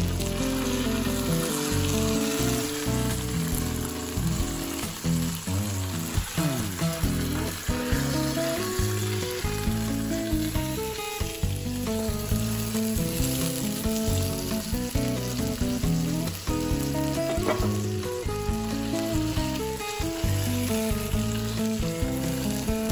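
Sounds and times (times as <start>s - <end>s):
chicken sizzling in hot oil: 0.0s - 22.9s
spatulas scraping pot: 17.2s - 17.9s.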